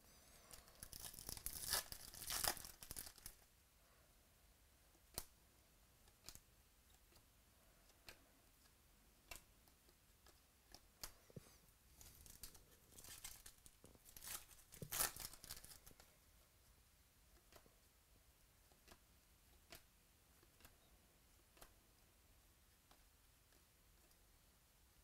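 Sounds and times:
wrapper rustling and crinkling: 0:00.5 - 0:03.4, 0:12.0 - 0:15.9.

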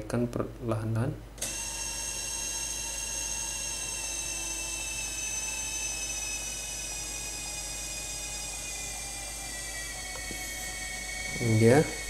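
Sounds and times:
electric motor whine: 0:01.4 - 0:12.0.

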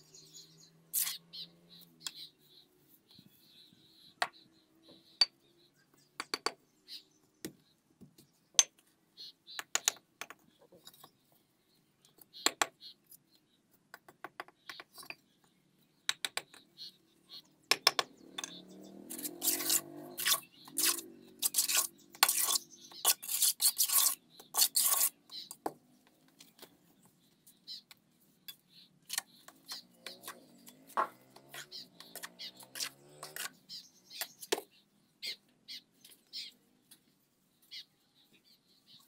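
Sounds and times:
trowel scraping mortar: 0:00.9 - 0:01.2, 0:19.0 - 0:25.6, 0:29.0 - 0:33.6
hammer tapping bricks: 0:06.2 - 0:06.6, 0:09.6 - 0:10.4, 0:12.4 - 0:12.8, 0:13.9 - 0:15.2, 0:16.1 - 0:16.7, 0:17.7 - 0:18.5.

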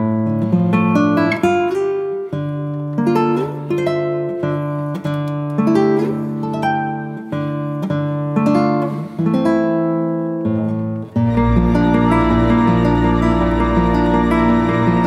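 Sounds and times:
plucked instrumental melody: 0:10.4 - 0:15.0.

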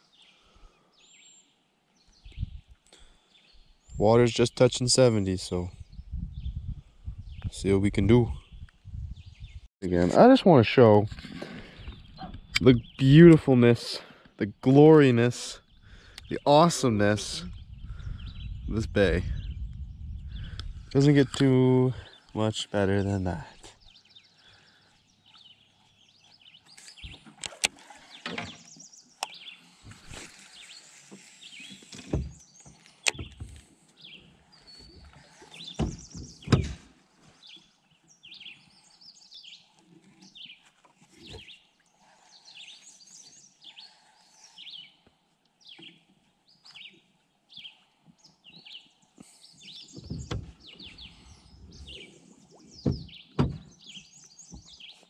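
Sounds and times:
birds chirping and singing: 0:00.0 - 0:55.0
knocks and bumps: 0:35.8 - 0:36.8, 0:50.0 - 0:50.6, 0:52.8 - 0:53.7.

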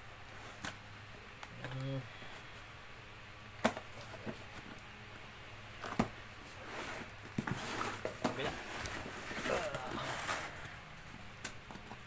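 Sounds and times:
cardboard tearing and rustling: 0:05.9 - 0:10.8.

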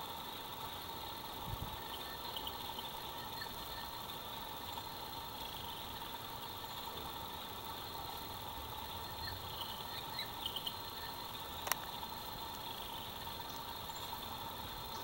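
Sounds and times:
background hiss: 0:00.0 - 0:15.0
faint hum: 0:00.0 - 0:15.0
sharp click: 0:11.6 - 0:11.9.

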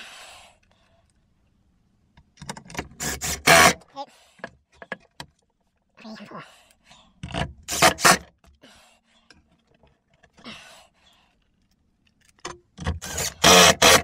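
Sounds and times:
drill driver bursts: 0:03.0 - 0:03.8, 0:07.7 - 0:08.3, 0:12.8 - 0:14.0.

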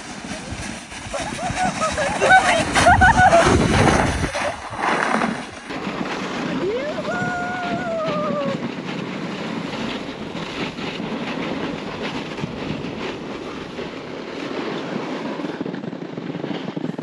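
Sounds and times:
sled scraping over snow: 0:00.0 - 0:17.0
person calling out: 0:06.6 - 0:08.6.

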